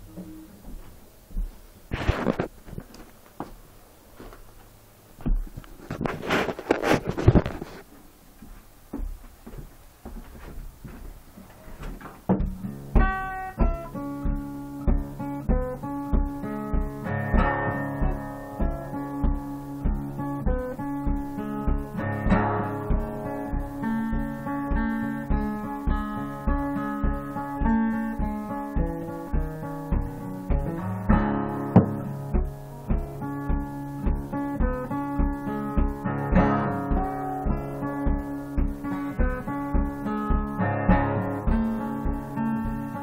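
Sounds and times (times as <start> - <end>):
acoustic guitar strumming: 12.2 - 43.0
low thump on the beat: 12.3 - 43.0.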